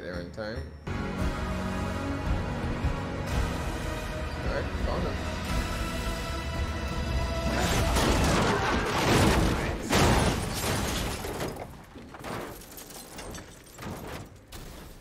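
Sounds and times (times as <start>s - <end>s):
clattering debris: 7.6s - 15.0s
glass shattering crash: 7.6s - 15.0s.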